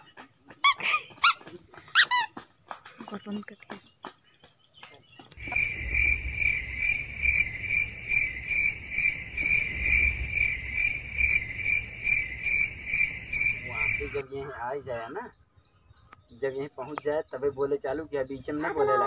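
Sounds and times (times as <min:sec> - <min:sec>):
cricket chirping: 0:05.3 - 0:15.2
low rumble: 0:05.4 - 0:14.2.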